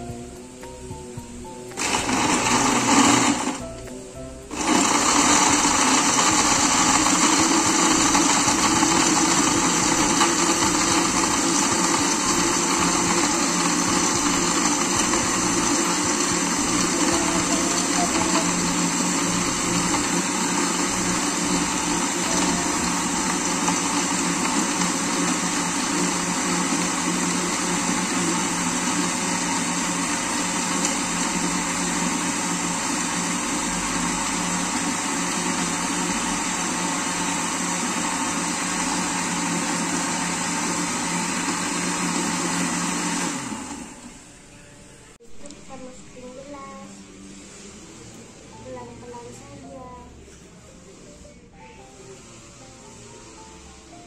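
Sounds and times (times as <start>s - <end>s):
blender running: 1.8s - 3.6s, 4.5s - 44.3s.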